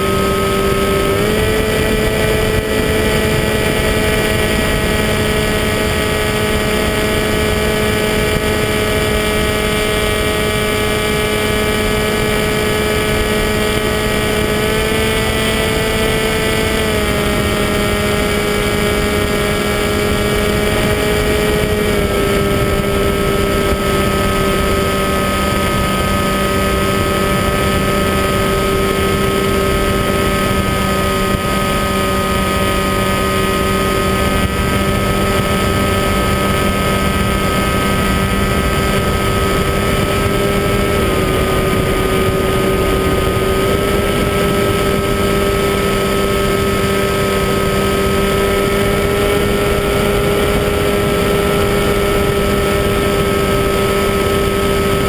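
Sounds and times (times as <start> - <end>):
electric motor and propeller whine: 0.0 - 55.0
wind rushing past microphone: 0.0 - 55.0.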